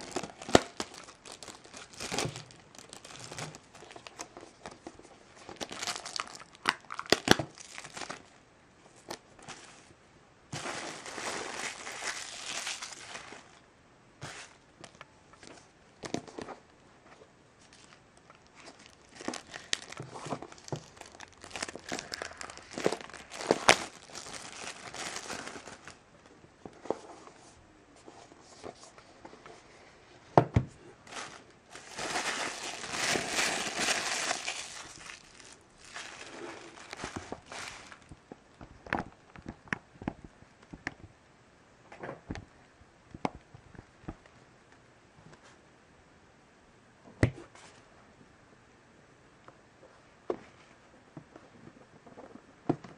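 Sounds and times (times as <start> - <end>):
plastic wrap tearing and crinkling: 0.0 - 4.8, 5.4 - 8.4, 10.6 - 13.6, 17.7 - 26.0, 31.0 - 38.2.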